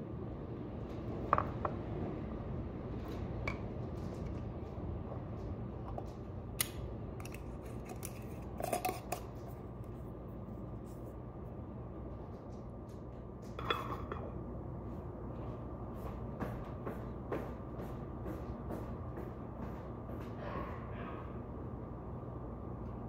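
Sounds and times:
steady low hum: 0.0s - 23.0s
kitchen utensils and dishes clinking: 13.6s - 14.3s.

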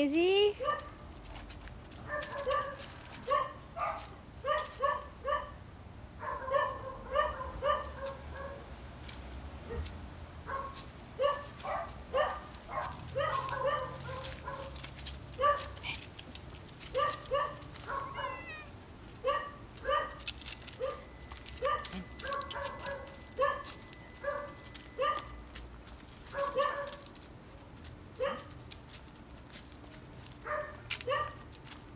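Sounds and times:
dog whining and yipping: 17.3s - 18.7s.

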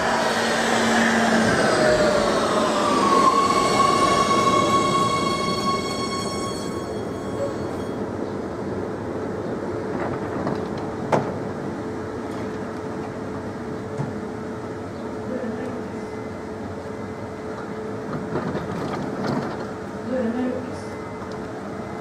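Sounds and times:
high electric whine: 0.0s - 8.0s
train equipment humming: 0.0s - 22.0s.

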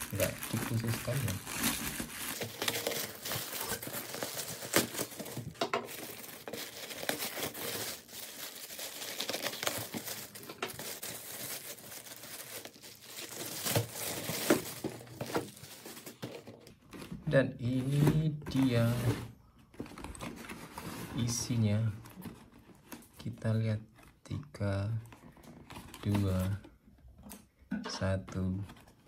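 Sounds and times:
plastic bag crinkling: 0.0s - 16.6s.

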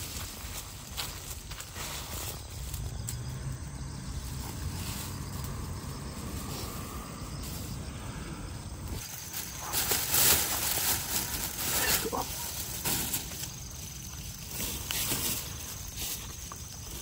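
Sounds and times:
steady low rumble: 0.0s - 11.7s.

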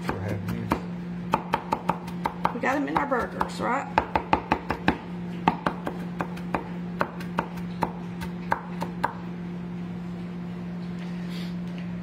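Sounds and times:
knife chopping on wooden board: 0.0s - 9.2s.

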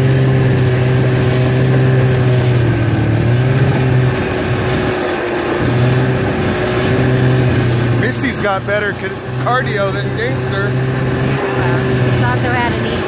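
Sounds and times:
snowmobile engine running: 0.0s - 13.0s.

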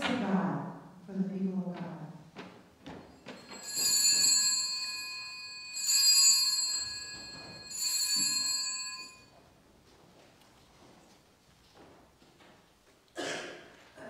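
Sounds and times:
altar bells ringing: 3.0s - 9.3s.

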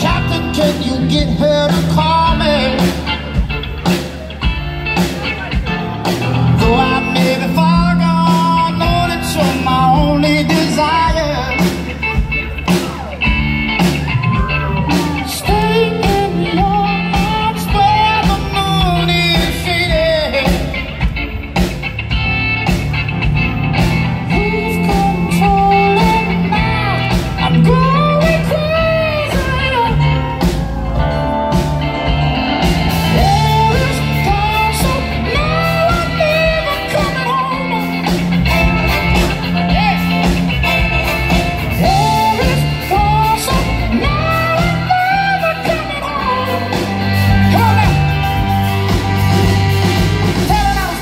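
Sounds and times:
bass: 0.0s - 51.0s
drums: 0.0s - 51.0s
electric guitar: 0.0s - 51.0s
trumpet and saxophone horns: 38.4s - 42.7s.

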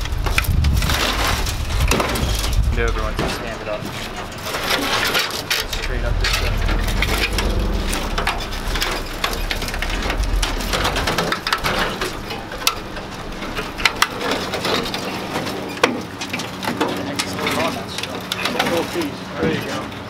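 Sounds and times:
low rumble: 5.3s - 14.6s.

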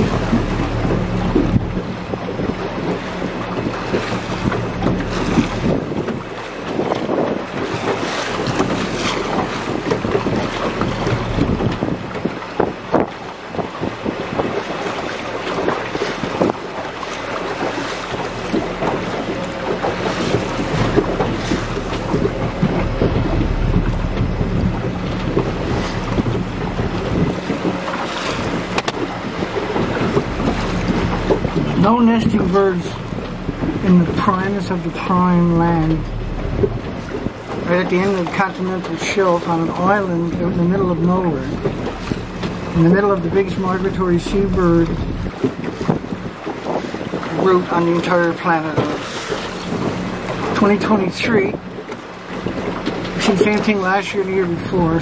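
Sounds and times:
low steady hum: 0.0s - 6.8s, 8.4s - 12.4s, 15.4s - 46.1s
water splashing against boat hull: 0.0s - 55.0s
wind rushing over microphone: 0.0s - 55.0s.

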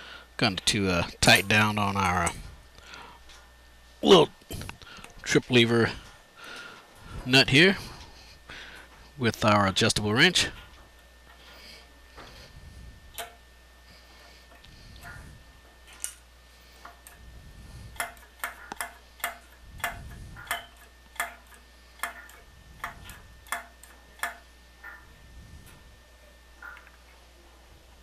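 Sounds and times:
sharp metal clicks: 17.9s - 25.0s.

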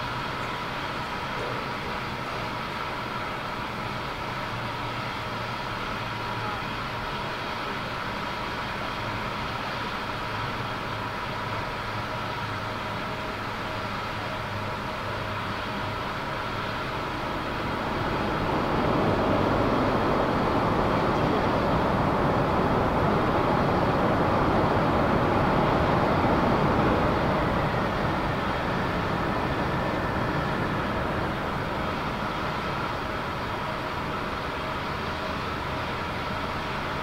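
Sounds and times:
jet engines rushing: 0.0s - 37.0s.

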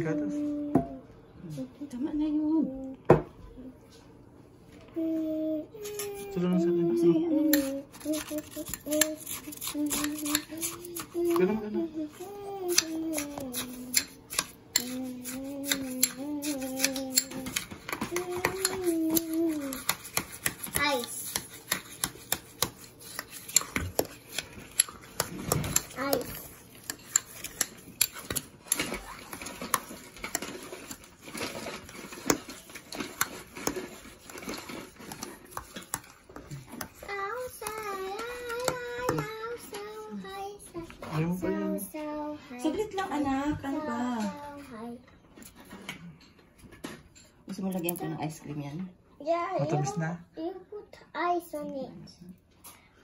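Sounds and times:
spoon scraping: 7.5s - 39.6s
person humming: 9.8s - 14.0s.

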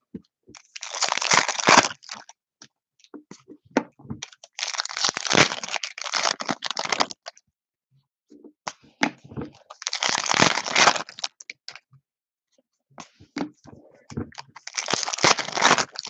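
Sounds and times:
foil wrapper tearing and crinkling: 0.6s - 2.3s, 4.5s - 7.3s, 9.7s - 11.4s, 14.6s - 16.0s.

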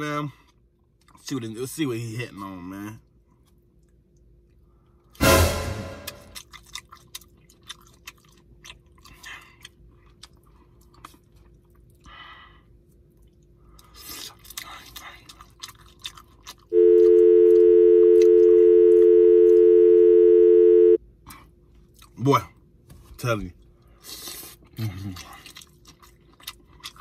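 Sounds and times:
steady electronic tone: 5.2s - 6.3s
person chewing food: 6.4s - 12.2s, 12.8s - 17.6s, 23.6s - 27.0s.

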